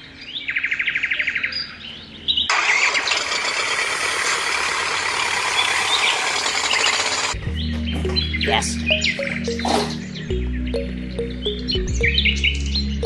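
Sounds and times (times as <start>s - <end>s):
quick chirping trill: 5.6s - 13.0s.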